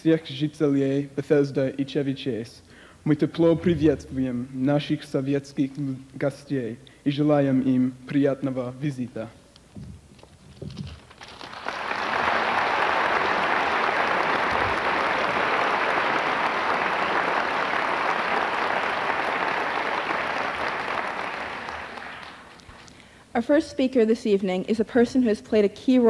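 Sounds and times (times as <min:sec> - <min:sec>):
audience applauding: 0:11.0 - 0:22.8.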